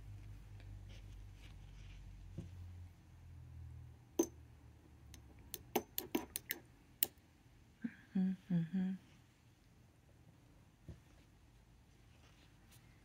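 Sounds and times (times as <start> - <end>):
woman humming: 7.8 - 9.1.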